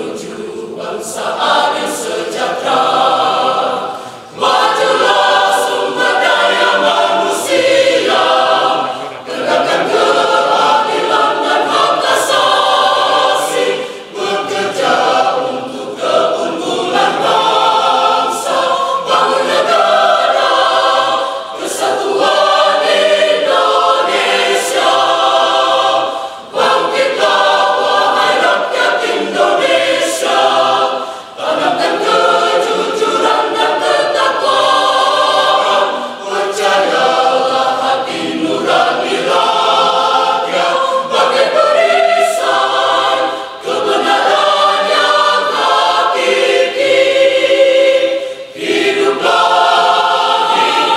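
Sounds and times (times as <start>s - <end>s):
church choir singing: 0.0s - 50.9s
singers breathing: 3.8s - 4.4s, 13.7s - 14.1s, 26.1s - 26.5s, 30.9s - 31.4s, 43.2s - 43.6s, 48.2s - 48.6s.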